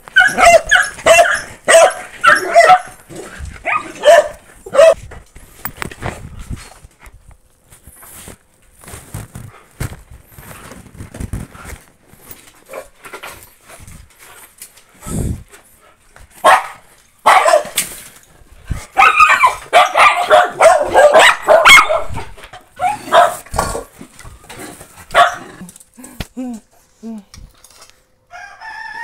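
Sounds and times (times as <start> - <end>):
dog barking and yelping: 0.1 - 5.0, 16.4 - 17.8, 18.8 - 23.9, 25.1 - 25.6.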